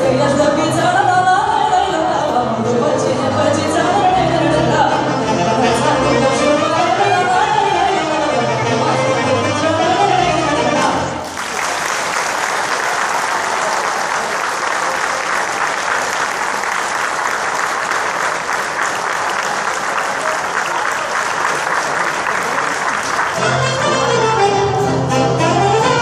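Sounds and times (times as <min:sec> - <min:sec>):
folk orchestra music: 0:00.0 - 0:11.2, 0:21.5 - 0:26.0
audience applauding: 0:11.2 - 0:23.9.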